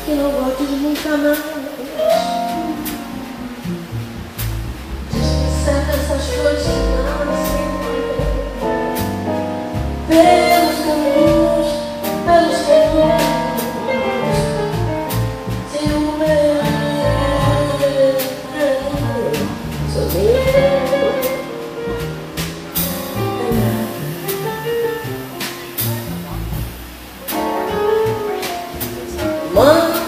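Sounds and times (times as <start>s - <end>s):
woman singing bossa nova: 0.0s - 3.2s, 5.1s - 9.0s, 10.1s - 14.9s, 15.7s - 21.7s, 23.3s - 24.0s, 29.1s - 30.0s
double bass: 0.0s - 30.0s
drums: 0.0s - 30.0s
piano: 0.0s - 30.0s.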